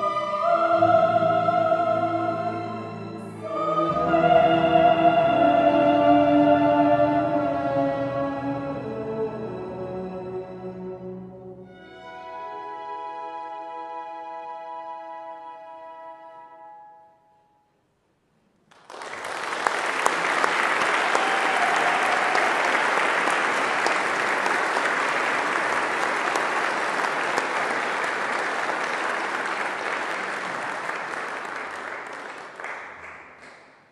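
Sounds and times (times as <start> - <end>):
choir and orchestra chord: 0.0 - 17.2
audience applause: 18.7 - 33.7.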